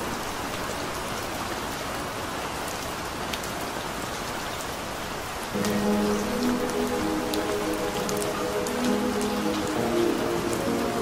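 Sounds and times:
steady rain falling: 0.0 - 11.0
distinct raindrops: 5.5 - 11.0.

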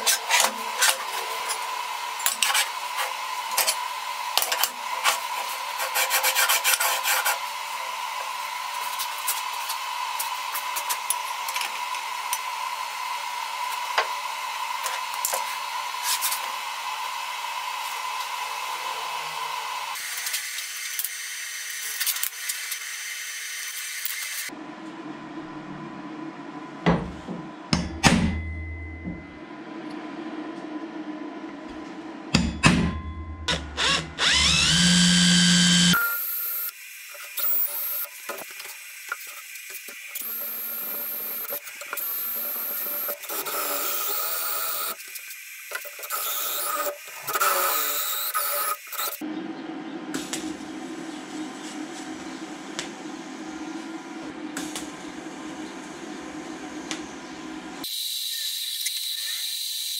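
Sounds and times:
cordless drill drilling steel: 33.5 - 36.8, 37.4 - 38.1, 40.1 - 45.0, 46.0 - 49.2.

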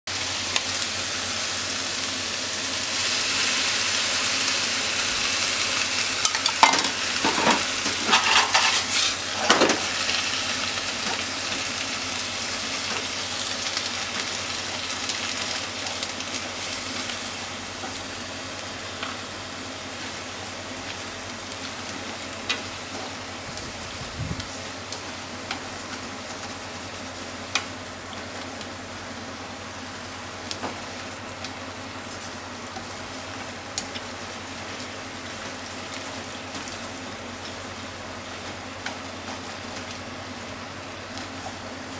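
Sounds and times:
meat sizzling in a frying pan: 0.1 - 41.9
spatula scraping and knocking pan: 6.3 - 9.8.

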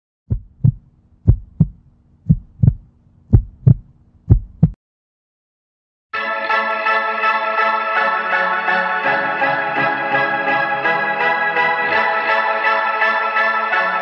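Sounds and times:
heartbeat thumps: 0.3 - 4.8
music: 6.1 - 14.0.

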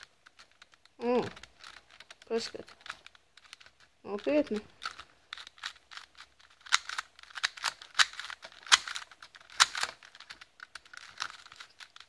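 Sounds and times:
plastic puzzle cube clicking: 0.0 - 12.0
sharp plastic snaps: 0.0 - 12.0.

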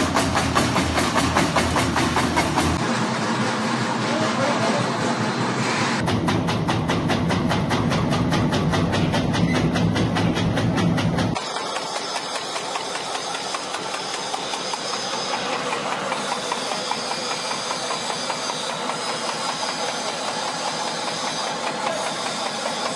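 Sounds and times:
herb cutting machine ticking: 6.3 - 22.9.

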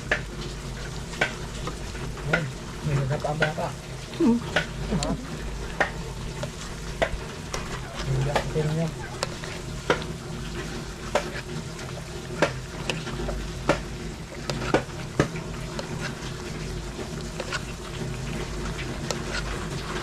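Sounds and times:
metal ladle scraping a wok: 7.4 - 20.0.

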